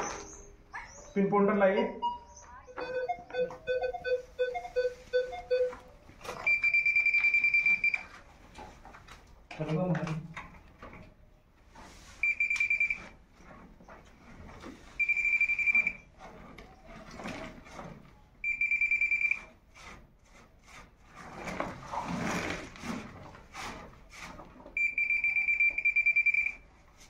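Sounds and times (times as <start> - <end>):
metal detector beeping: 1.8 - 5.8, 6.4 - 8.0, 12.2 - 13.0, 15.0 - 16.0, 18.4 - 19.4, 24.8 - 26.6.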